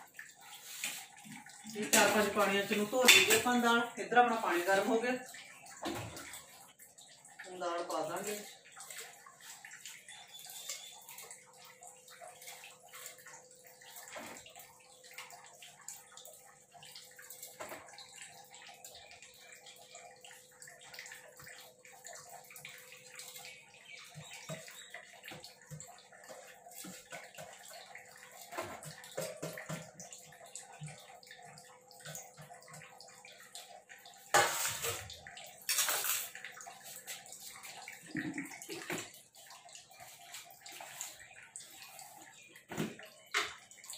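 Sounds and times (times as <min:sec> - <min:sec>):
lentils splashing into water: 0:34.3 - 0:37.3.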